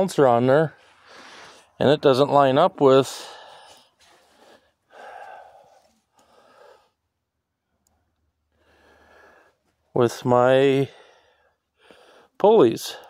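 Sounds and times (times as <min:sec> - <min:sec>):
faint breaths: 0:00.7 - 0:01.8, 0:03.0 - 0:09.9, 0:10.7 - 0:13.0.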